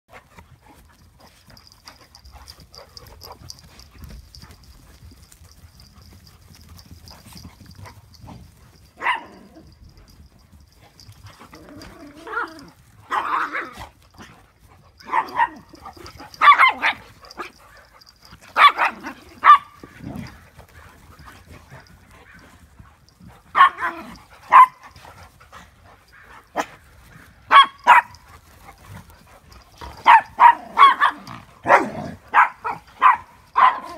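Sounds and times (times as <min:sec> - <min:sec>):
dogs barking: 0:08.9 - 0:10.1, 0:11.3 - 0:13.8, 0:15.0 - 0:20.4, 0:23.4 - 0:25.0, 0:27.5 - 0:28.7, 0:29.4 - 0:33.9.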